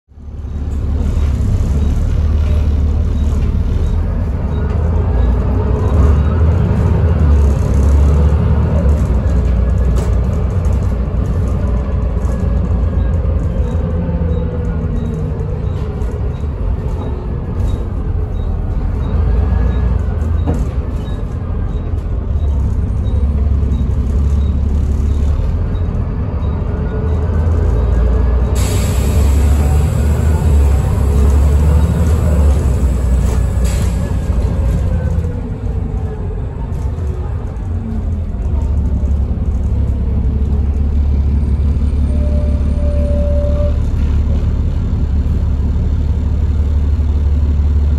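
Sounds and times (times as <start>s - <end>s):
bus engine rumble: 0.1s - 47.9s.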